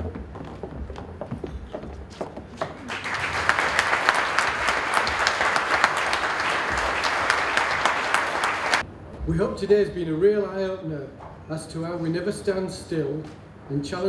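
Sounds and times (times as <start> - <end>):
audience applauding: 2.6 - 8.8.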